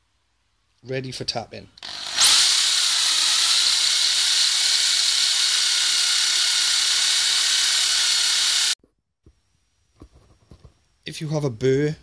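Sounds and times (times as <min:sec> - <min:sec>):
electric drill whining: 0:01.8 - 0:08.8.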